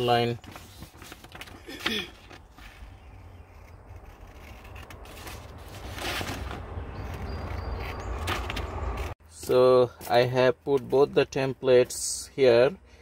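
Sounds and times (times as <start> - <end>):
paper rustling: 0.0 - 9.2
scissors snipping paper: 2.6 - 9.1.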